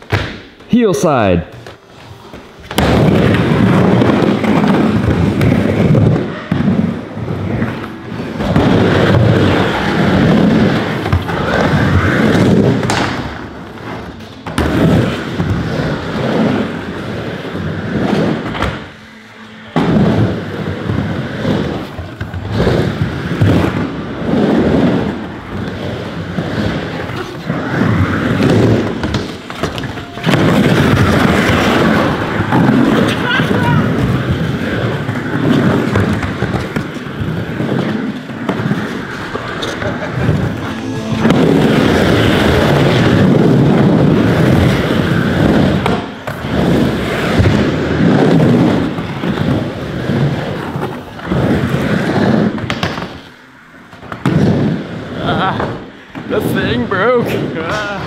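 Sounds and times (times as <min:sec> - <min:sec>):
skateboard wheels rolling on wood: 0:00.0 - 0:58.0
skateboard thumps: 0:08.3 - 0:13.4.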